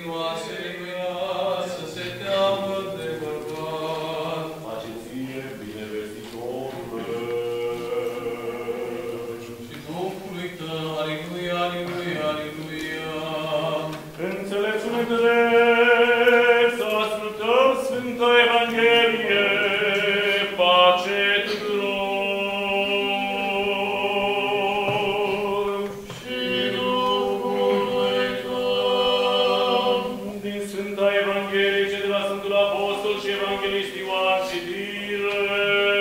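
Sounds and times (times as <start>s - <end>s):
male voices chanting: 0.0s - 36.0s.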